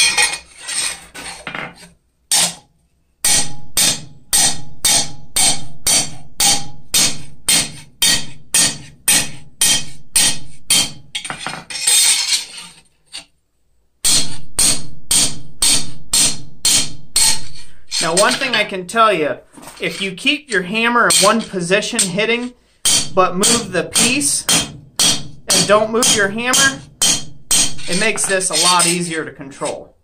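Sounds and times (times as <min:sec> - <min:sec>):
hammer striking steel on anvil: 0:03.2 - 0:11.5, 0:14.0 - 0:18.6, 0:21.1 - 0:21.5, 0:22.8 - 0:29.0.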